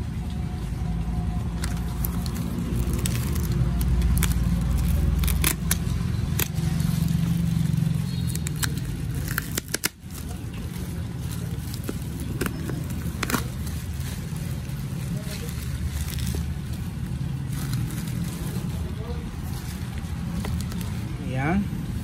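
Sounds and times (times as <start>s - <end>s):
plastic crinkling: 1.4s - 22.0s
utility knife slitting tape: 1.6s - 10.4s.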